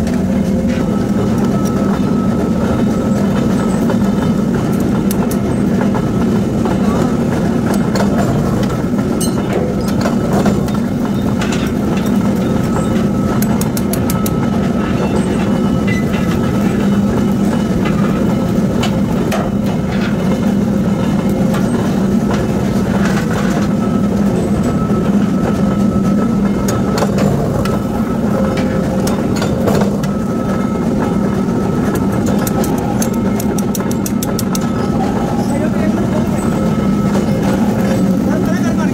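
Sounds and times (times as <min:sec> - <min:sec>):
forging press drone: 0:00.0 - 0:38.9
metallic clicks and knocks: 0:31.9 - 0:34.7.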